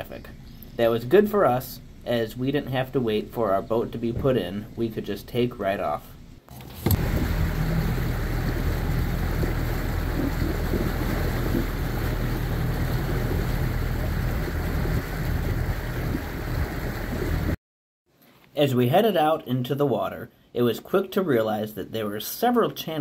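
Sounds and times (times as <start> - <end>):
outboard motor running: 6.6 - 17.6
water rushing past hull: 6.6 - 17.6
wind on microphone: 6.8 - 17.6.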